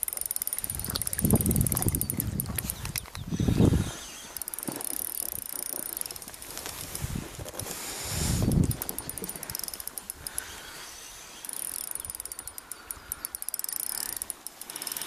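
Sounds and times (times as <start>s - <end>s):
spinning reel ticking rapidly: 0.0s - 2.6s, 4.4s - 6.4s, 8.4s - 10.5s, 11.4s - 15.0s.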